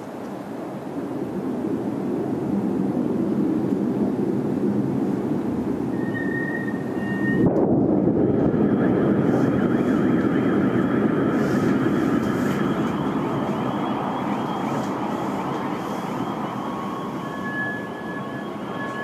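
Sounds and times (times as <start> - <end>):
faint steady high tones: 6.0 - 19.0
distant explosion rumble: 7.4 - 19.0.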